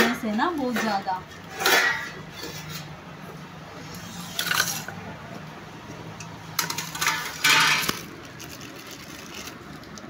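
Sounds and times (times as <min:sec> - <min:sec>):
foil and plastic wrapper crinkling: 0:06.7 - 0:10.0.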